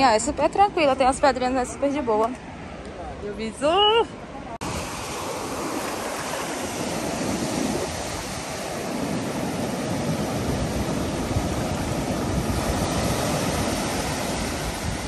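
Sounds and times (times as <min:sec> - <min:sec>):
surf breaking on beach: 0:04.6 - 0:15.0.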